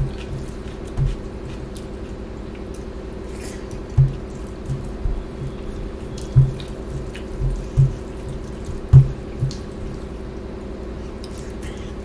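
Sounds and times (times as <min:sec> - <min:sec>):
fingers squishing rice and curry: 0:00.0 - 0:09.7
chewing: 0:00.0 - 0:10.1, 0:11.0 - 0:12.0
low thumps: 0:03.9 - 0:08.1, 0:08.7 - 0:09.9.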